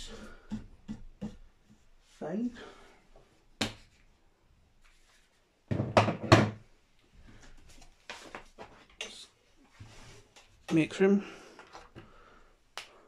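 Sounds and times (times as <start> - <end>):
soft rustle: 3.2 - 5.6
knocks on wooden workbench: 5.7 - 6.6.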